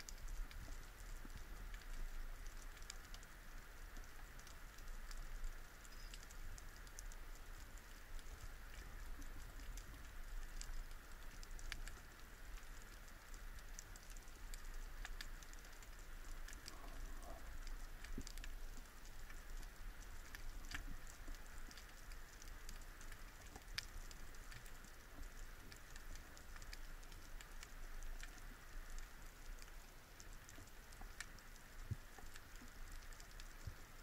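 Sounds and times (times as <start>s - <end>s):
underwater clicks and crackles: 0.0s - 34.0s
low underwater rumble: 15.7s - 21.2s.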